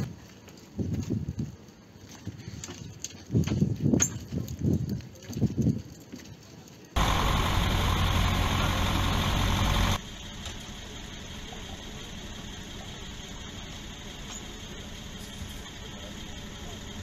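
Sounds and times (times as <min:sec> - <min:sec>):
diesel bus engines idling: 0:07.0 - 0:17.0.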